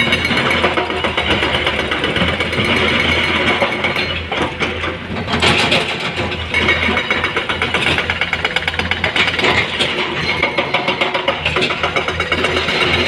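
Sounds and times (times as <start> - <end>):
heavy diesel engines clattering: 0.0 - 13.0.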